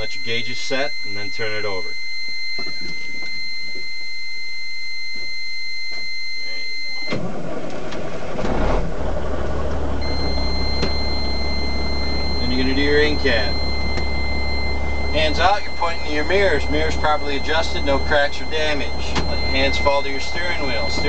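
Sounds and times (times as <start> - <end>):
truck warning buzzer: 0.0 - 7.2, 10.0 - 21.0
diesel engine cranking and idling: 7.1 - 21.0.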